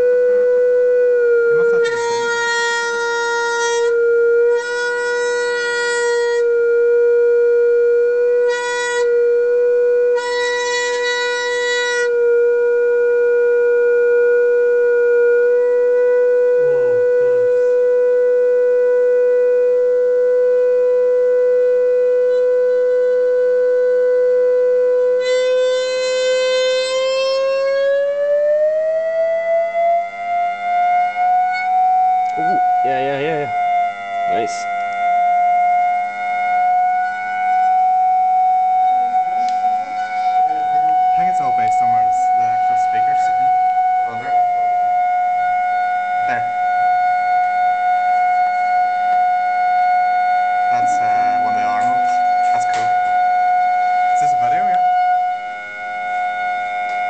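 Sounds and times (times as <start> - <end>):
steady test tone: 0.0 - 57.0.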